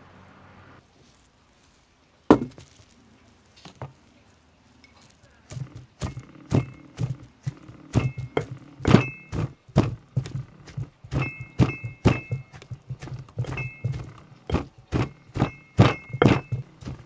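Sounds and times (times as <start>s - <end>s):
stone pestle pounding in mortar: 2.3s - 2.6s, 5.5s - 17.0s.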